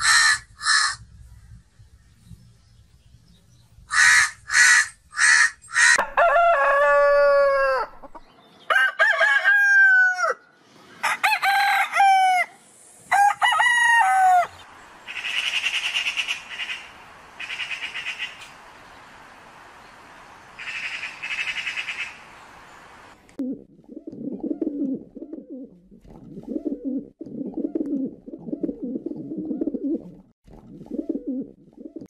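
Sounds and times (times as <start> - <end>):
crow cawing: 0.0 - 1.0, 3.9 - 6.0, 20.6 - 22.2
rooster crowing: 5.8 - 14.7
magpies chattering: 15.1 - 18.5.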